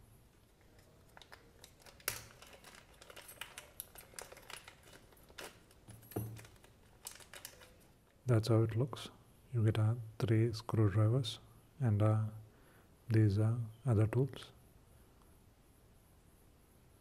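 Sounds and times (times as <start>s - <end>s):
plastic bag crinkling: 0.4s - 8.0s.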